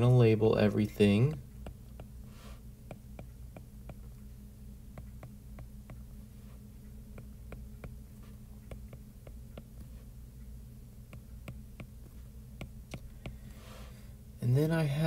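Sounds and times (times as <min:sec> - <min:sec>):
low hum: 0:00.0 - 0:15.0
stylus tapping on tablet screen: 0:01.2 - 0:02.2, 0:02.8 - 0:04.2, 0:04.9 - 0:06.1, 0:07.1 - 0:08.0, 0:08.6 - 0:10.0, 0:11.1 - 0:13.4.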